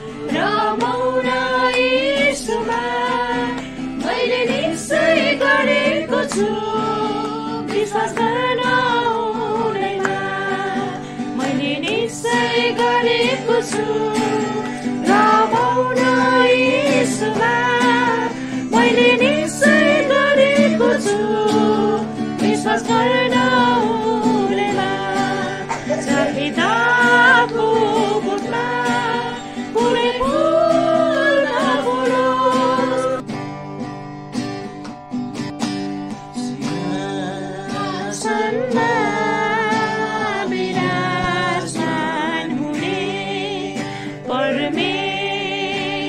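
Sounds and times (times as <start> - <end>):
person singing: 0.0 - 33.3, 36.3 - 46.0
acoustic guitar strumming: 0.0 - 46.0
man singing: 24.2 - 28.5, 36.3 - 46.0.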